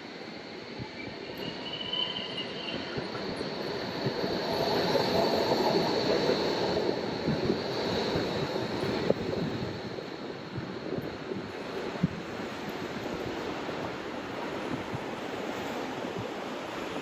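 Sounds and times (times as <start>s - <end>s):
tram passing on tracks: 0.0s - 17.0s
tram wheels squealing: 0.6s - 9.8s.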